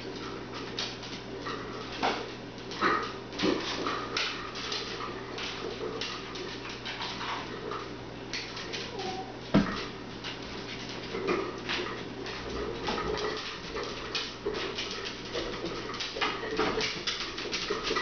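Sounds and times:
dogs whining: 8.8s - 9.5s
ball clicks and scuffs on floor: 9.6s - 10.0s.

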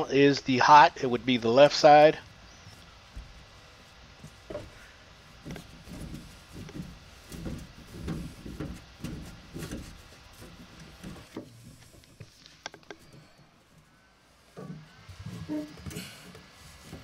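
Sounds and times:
muffled knocks and rubbing of pipes: 5.4s - 13.4s, 14.5s - 17.0s.

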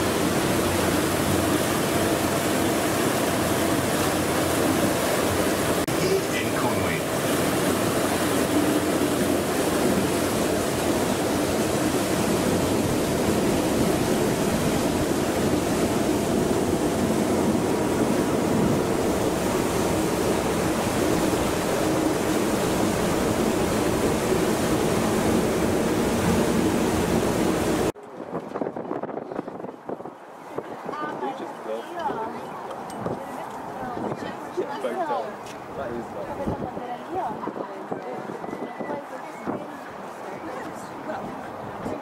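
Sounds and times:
low boat engine drone: 0.0s - 28.0s
churning water: 0.0s - 28.9s, 29.7s - 42.0s.

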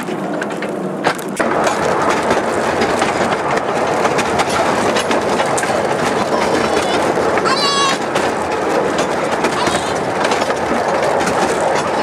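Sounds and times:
railway carriage wheels clattering: 0.0s - 12.0s.

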